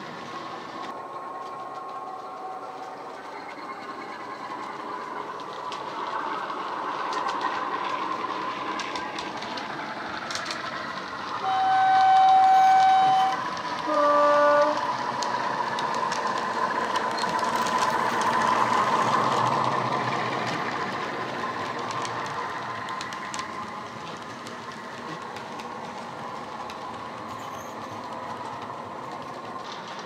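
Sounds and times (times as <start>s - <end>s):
two-tone horn: 11.4s - 14.8s.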